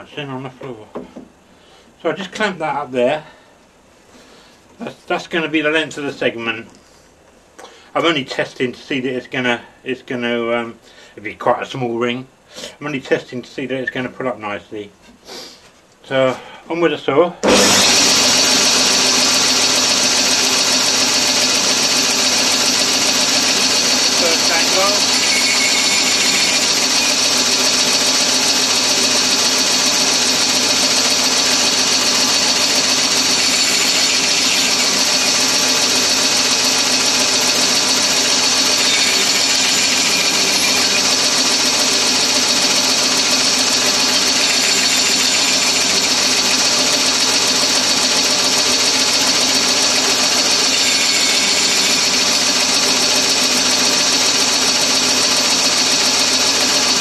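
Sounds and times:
bandsaw blade cutting wood: 17.4s - 57.0s
bandsaw running: 17.4s - 57.0s.

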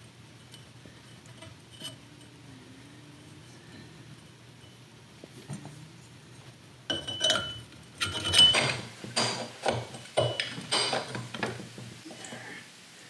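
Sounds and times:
metal pipe clinking and knocking: 6.9s - 11.7s.

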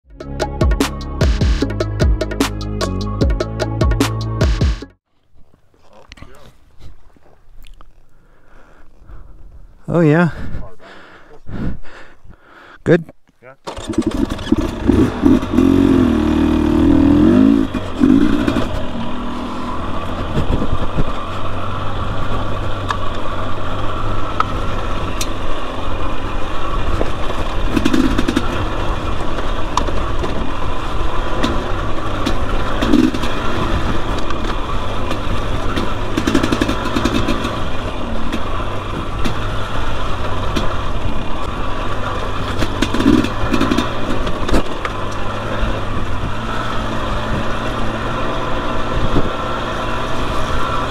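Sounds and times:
dirt bike engine revving: 13.7s - 50.9s.

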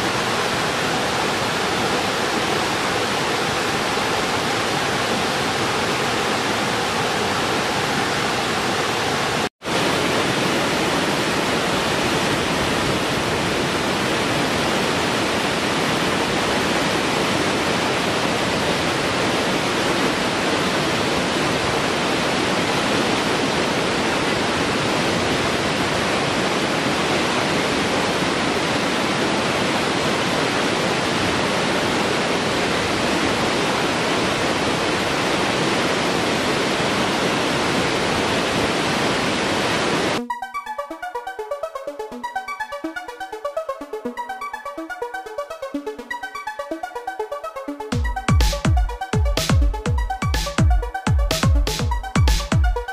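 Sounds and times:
water cascading over rocks: 0.0s - 40.2s.

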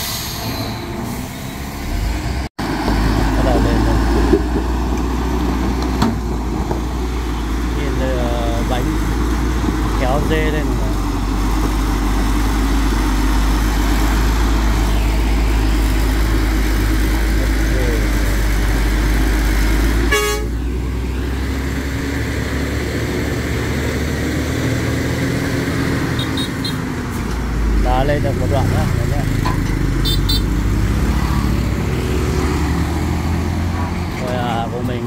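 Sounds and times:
truck diesel engine rumbling: 0.0s - 35.0s
vehicle horn toot: 20.1s - 20.6s, 26.2s - 26.8s, 30.0s - 30.5s.

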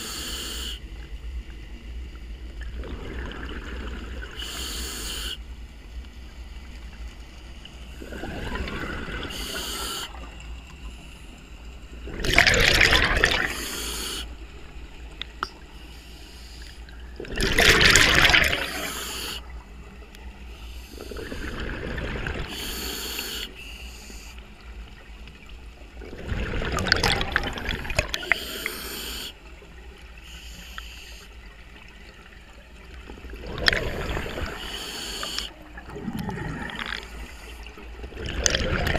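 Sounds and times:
regulator hiss: 0.0s - 1.0s, 4.4s - 5.5s, 9.2s - 11.4s, 13.4s - 14.5s, 15.6s - 16.9s, 18.6s - 19.8s, 20.4s - 21.6s, 22.4s - 24.6s, 28.2s - 29.4s, 30.2s - 31.5s, 34.2s - 35.6s
bubbling underwater exhalations: 8.0s - 9.3s, 12.1s - 13.7s, 17.2s - 19.0s, 26.0s - 28.4s, 33.3s - 34.6s, 35.7s - 37.3s, 38.0s - 38.9s.

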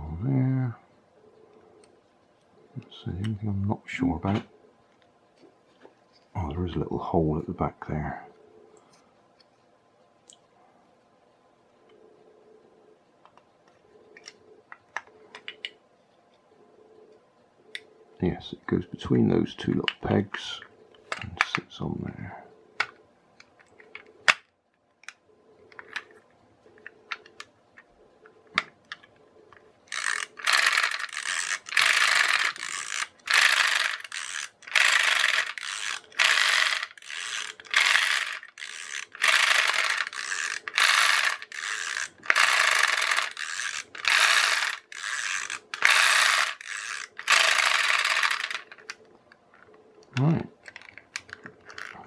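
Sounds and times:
clockwork toy ratcheting whirrs: 29.9s - 49.0s, 50.7s - 52.0s.

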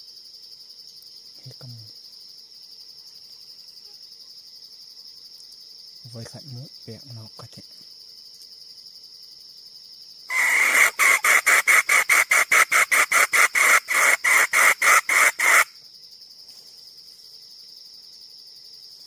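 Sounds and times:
high insect drone: 0.0s - 19.0s
hen clucking: 10.3s - 15.7s.

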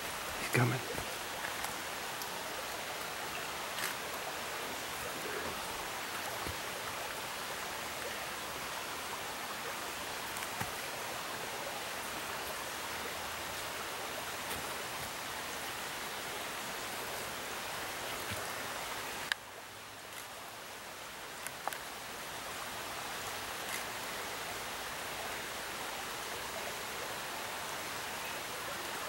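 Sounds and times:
quiet hiss with faint ticks: 18.0s - 20.5s, 21.2s - 22.6s.

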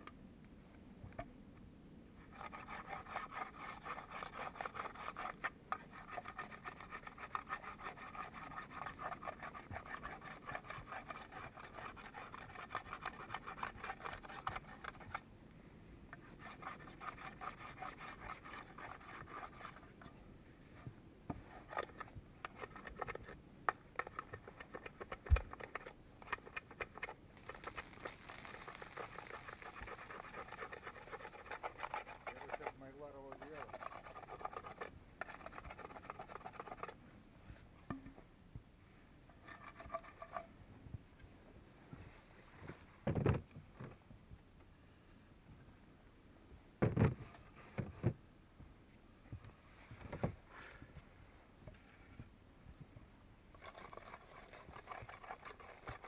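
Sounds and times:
hand auger rasping into wood: 2.3s - 15.2s, 16.2s - 19.9s, 24.0s - 37.0s, 53.6s - 56.0s.

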